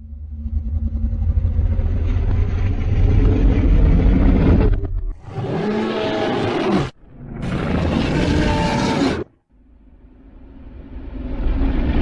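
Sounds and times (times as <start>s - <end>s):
deep monster rumble: 0.0s - 12.0s.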